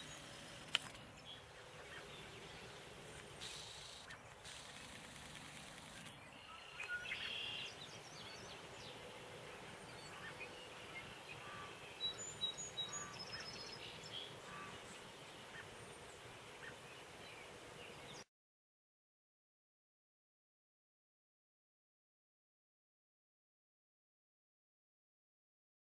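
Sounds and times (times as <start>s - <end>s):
bird chirps and calls: 0.0s - 4.8s, 5.9s - 18.2s
background hiss: 0.0s - 6.2s, 6.8s - 18.2s.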